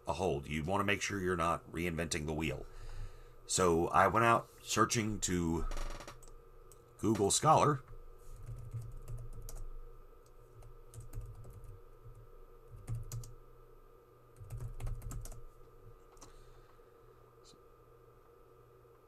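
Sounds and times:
typing on keyboard: 8.4s - 9.6s, 10.9s - 13.3s, 14.4s - 15.4s.

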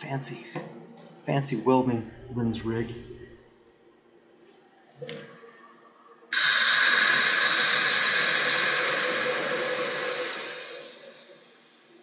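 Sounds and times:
water hissing on hot metal: 6.3s - 11.6s.

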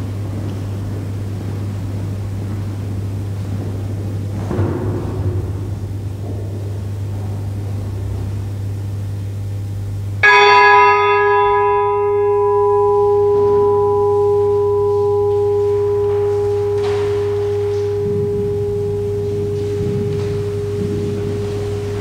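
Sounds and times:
bell clanging and ringing: 10.2s - 22.0s
low hum: 11.0s - 22.0s.

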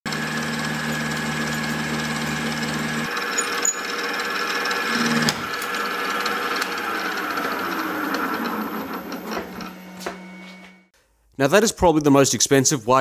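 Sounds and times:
milling machine running: 0.1s - 10.3s
high cutting whine: 0.1s - 10.8s.

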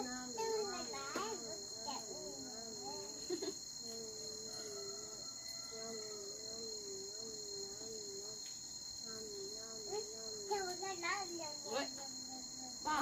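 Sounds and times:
crickets chirring: 0.0s - 13.0s
faint wavering tone: 3.8s - 13.0s.

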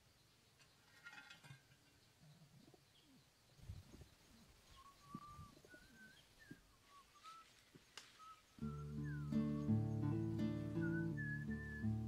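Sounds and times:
high whistled bird notes: 4.8s - 12.0s.

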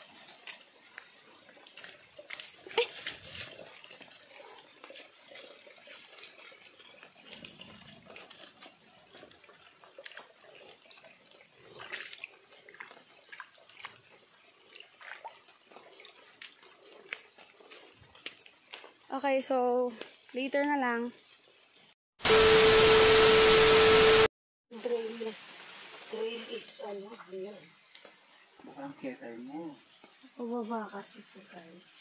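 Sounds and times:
footsteps on muddy trail: 0.1s - 6.6s.

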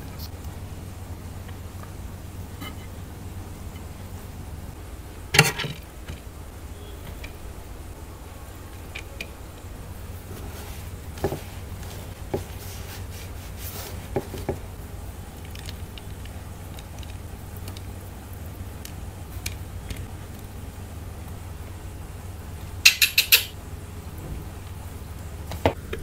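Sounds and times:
steady low hum: 0.0s - 26.0s
utensil scrape: 10.3s - 14.4s
sharp utensil knock: 22.8s - 23.5s.

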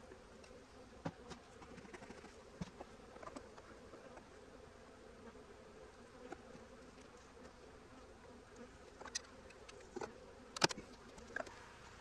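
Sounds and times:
honey bees buzzing: 0.0s - 12.0s
wooden knocks of hive frames: 1.0s - 4.3s.

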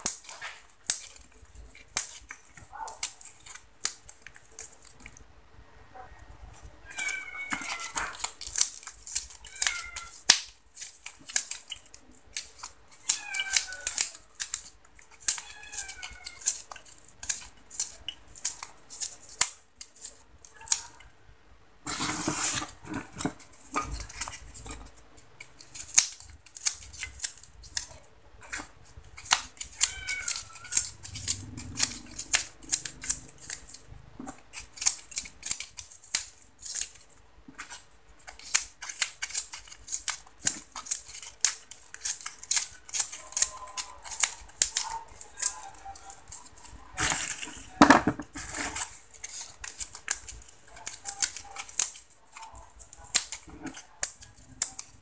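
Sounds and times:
styrofoam crackling and crunching: 34.4s - 55.0s.

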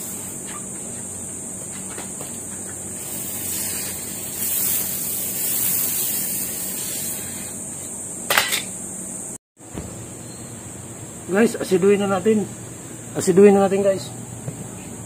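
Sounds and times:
hose water spraying on tiles: 3.0s - 7.6s.

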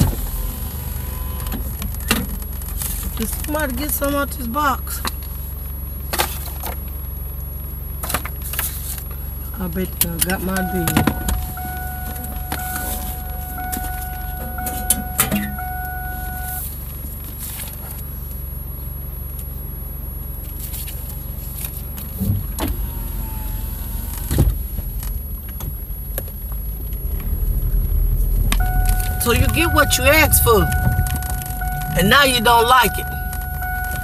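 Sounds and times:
low rumble inside car: 0.0s - 34.0s
steady high hum: 8.5s - 16.8s, 24.1s - 34.0s.

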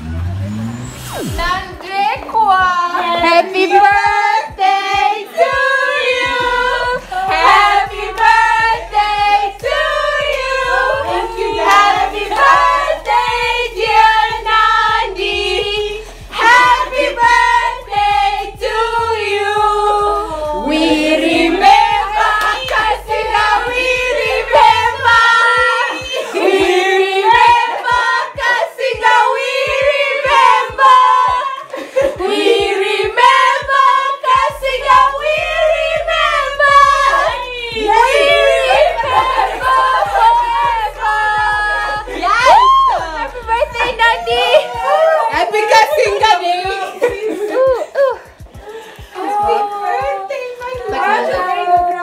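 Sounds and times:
women singing together: 1.4s - 52.0s.

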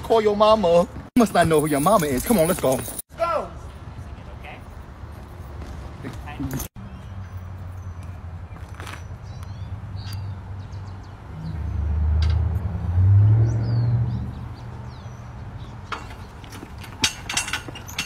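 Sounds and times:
metal chains clinking and rattling: 1.2s - 3.1s, 15.8s - 18.0s
birds chirping: 3.7s - 11.9s, 13.3s - 18.0s
low rumble of passing vehicle: 9.6s - 17.0s.

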